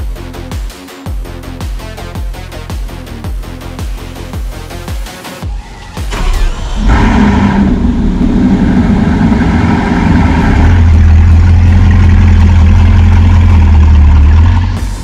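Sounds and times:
car engine idling: 0:05.5 - 0:15.0.

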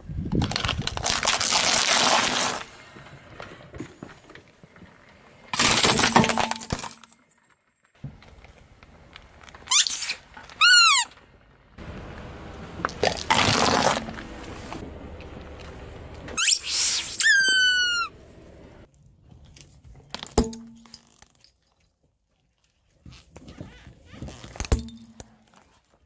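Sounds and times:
car tyre crushing wafer cones: 0:00.4 - 0:06.9, 0:08.0 - 0:17.8
rubber squeaky toy squeak: 0:09.7 - 0:11.2, 0:16.4 - 0:18.2.

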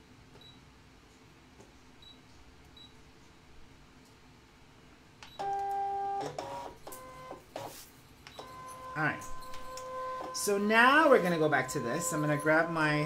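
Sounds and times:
cutting machine motor whine: 0:08.5 - 0:13.0.

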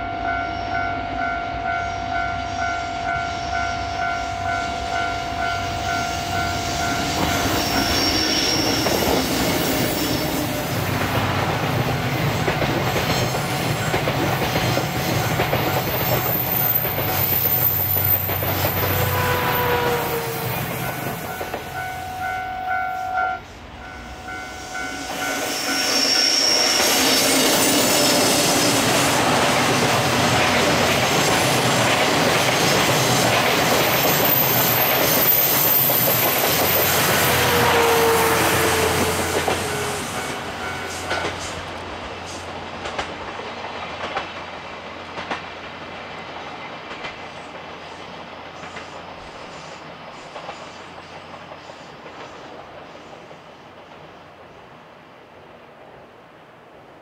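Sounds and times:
train wheels rumbling: 0:01.6 - 0:54.8
brief squealing tones: 0:07.2 - 0:09.2, 0:24.6 - 0:27.4
clickety-clack over rail joints: 0:08.5 - 0:21.8, 0:26.8 - 0:54.2.

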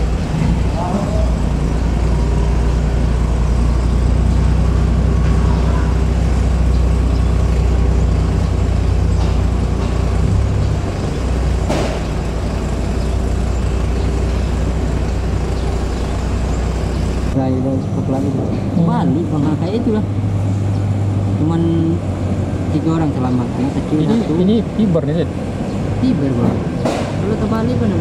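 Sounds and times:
boat engine droning: 0:00.0 - 0:28.0.

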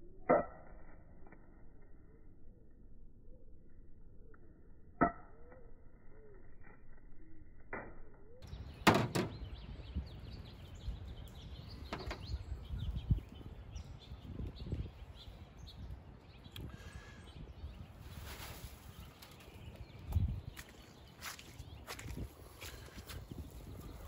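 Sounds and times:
birds chirping: 0:08.3 - 0:24.0.

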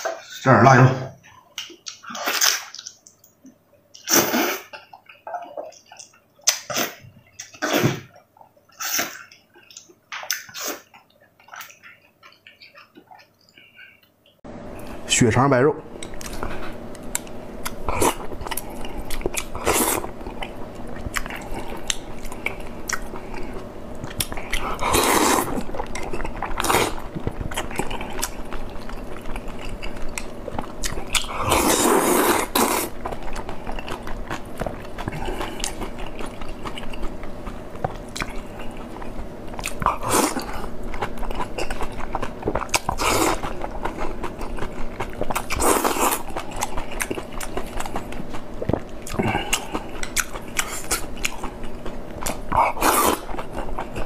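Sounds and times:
close-miked chewing: 0:16.0 - 0:54.0.

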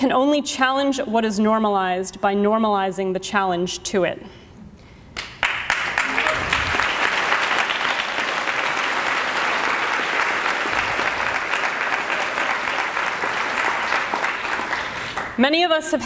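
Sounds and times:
audience applauding: 0:05.2 - 0:15.4.

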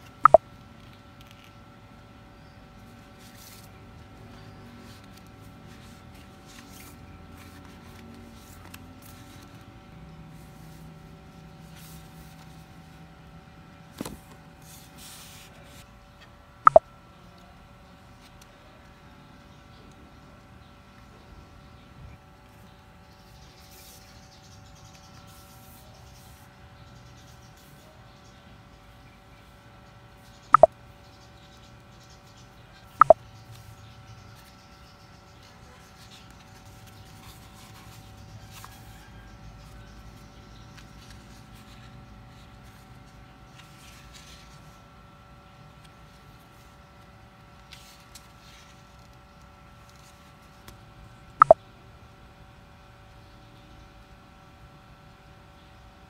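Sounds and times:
paper rustling: 0:47.6 - 0:49.2.

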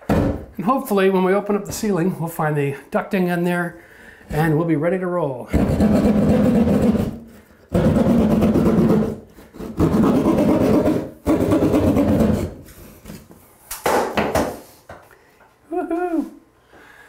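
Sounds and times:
hand saw cutting drywall: 0:05.5 - 0:12.6.

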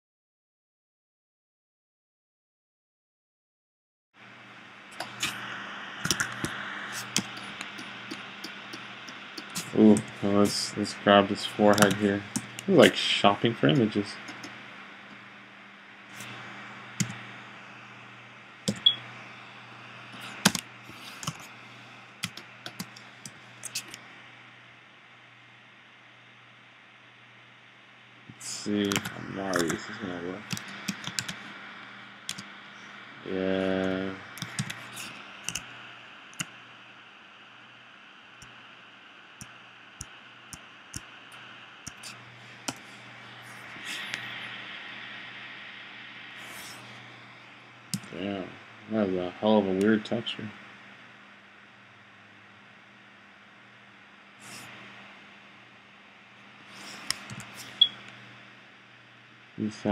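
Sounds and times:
steady low hum: 0:04.2 - 0:59.9
computer keyboard and mouse clicks: 0:06.0 - 0:10.1, 0:11.7 - 0:12.7, 0:20.4 - 0:20.6, 0:30.5 - 0:31.4, 0:32.3 - 0:32.5, 0:34.4 - 0:35.7.

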